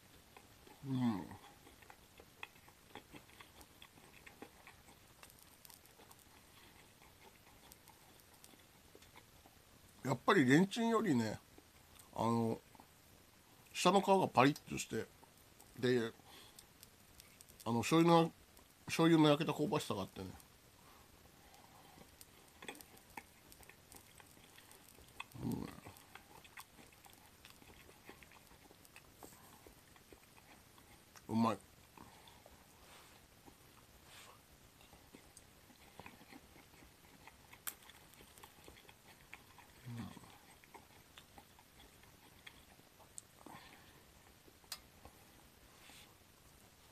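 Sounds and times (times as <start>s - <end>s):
crunchy chewing: 0.0s - 10.2s, 14.4s - 45.5s
low hiss: 0.0s - 46.9s
small clicks and ticks: 1.8s - 9.6s, 16.4s - 17.8s, 21.5s - 31.4s.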